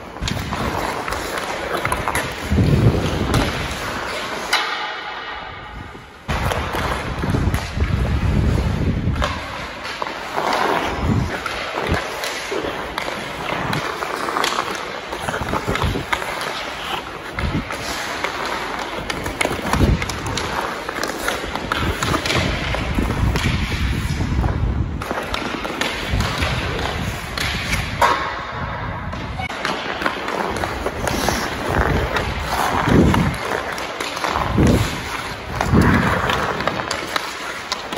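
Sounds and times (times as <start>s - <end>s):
skates scraping on ice: 0.0s - 37.9s
stick knocking puck: 0.2s - 5.6s.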